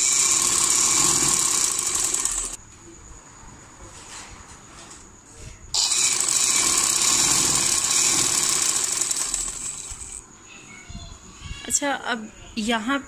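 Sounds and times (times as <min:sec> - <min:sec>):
sewing machine stitching: 0:00.0 - 0:02.6, 0:05.8 - 0:10.2.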